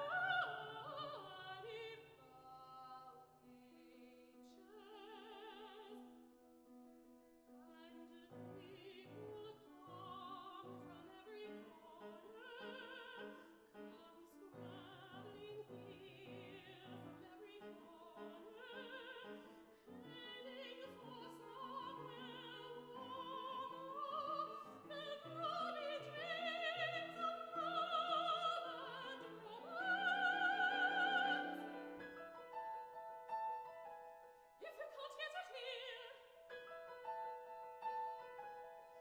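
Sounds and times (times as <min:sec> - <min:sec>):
soprano singing opera: 0:00.0 - 0:06.2, 0:07.6 - 0:39.0
piano accompaniment: 0:06.4 - 0:34.6.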